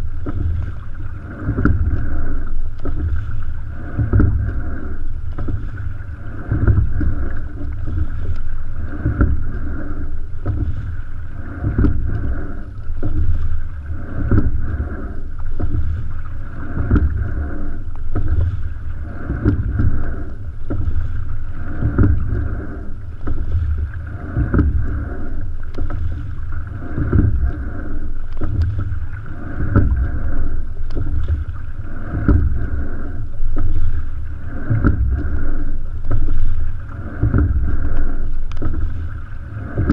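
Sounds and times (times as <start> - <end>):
oar knock and splash: 0.0 - 39.9
water rushing along hull: 0.0 - 39.9
wind rumbling on microphone: 0.0 - 39.9.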